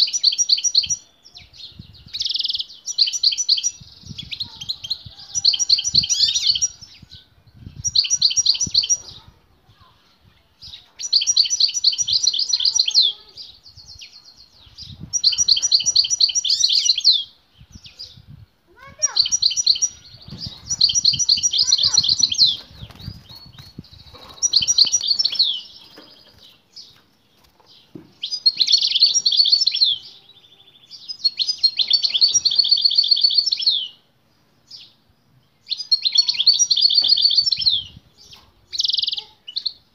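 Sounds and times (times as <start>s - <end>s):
goldfinch twittering song: 10.3s - 34.0s.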